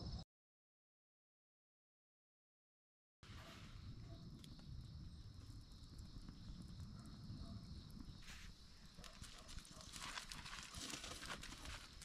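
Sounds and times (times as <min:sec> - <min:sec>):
wood fire crackling: 0:03.8 - 0:12.0.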